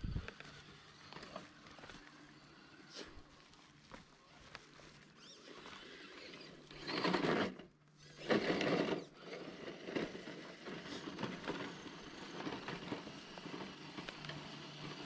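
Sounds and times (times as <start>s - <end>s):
electric motor and gears whining: 0.0s - 15.0s.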